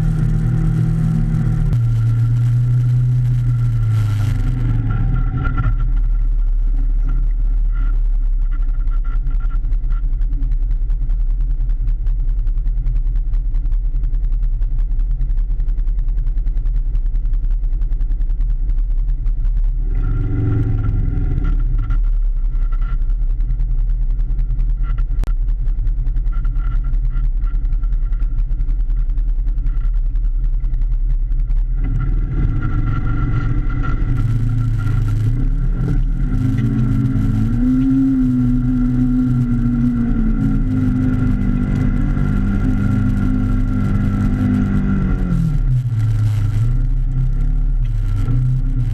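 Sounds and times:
engine revving: 0.0s - 8.0s, 19.8s - 22.0s, 31.6s - 48.9s.

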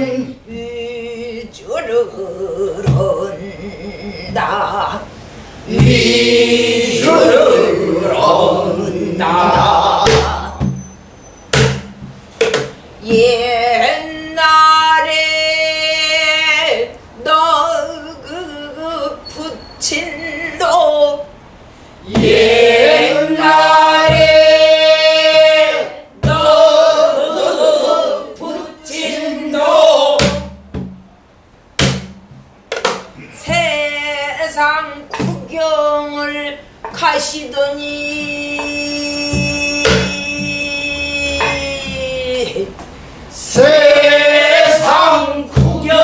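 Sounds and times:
woman singing with vibrato: 0.0s - 10.8s, 13.0s - 30.2s, 33.2s - 46.0s
barrel drum strikes: 5.7s - 6.3s, 9.5s - 10.8s, 11.5s - 12.8s, 22.1s - 22.5s, 24.0s - 24.5s, 26.2s - 26.6s, 30.2s - 31.1s, 31.7s - 33.6s, 39.3s - 40.6s, 45.5s - 46.0s.

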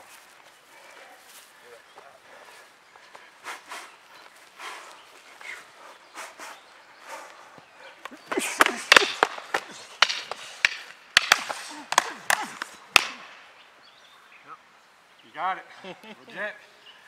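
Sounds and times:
fighting sticks cracking together: 8.0s - 13.5s.

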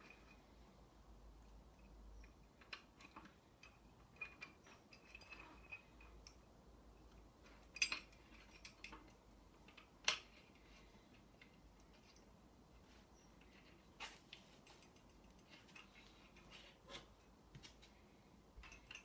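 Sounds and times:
small metal clicks and clinks: 1.4s - 6.4s, 7.4s - 12.3s, 14.3s - 16.8s, 18.6s - 19.0s.

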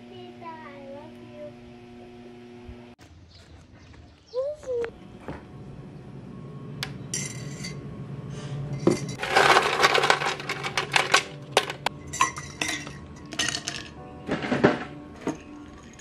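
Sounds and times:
ice cubes clattering: 8.8s - 16.0s.

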